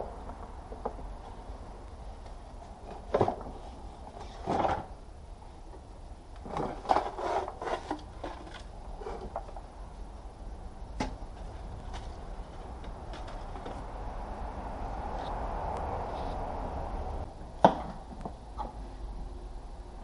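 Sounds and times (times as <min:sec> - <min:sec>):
plastic scraping: 0:06.4 - 0:09.6.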